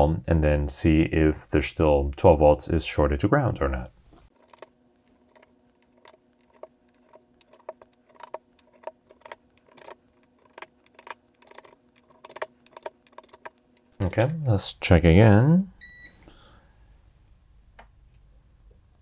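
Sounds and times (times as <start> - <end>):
chips clicking in sockets: 5.3 - 14.4.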